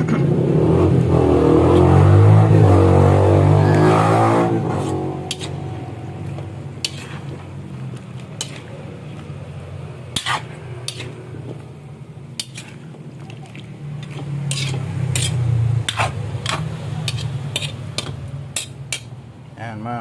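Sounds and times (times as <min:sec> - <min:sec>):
metal spatula scraping a wok: 0:02.5 - 0:11.6, 0:12.3 - 0:12.9, 0:14.0 - 0:19.2
steady low hum: 0:04.3 - 0:19.6.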